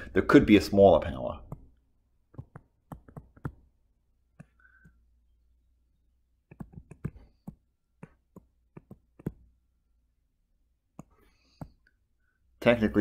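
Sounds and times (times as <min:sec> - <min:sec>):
stylus clicking on tablet screen: 0:01.4 - 0:05.2, 0:06.4 - 0:09.6, 0:10.8 - 0:12.0.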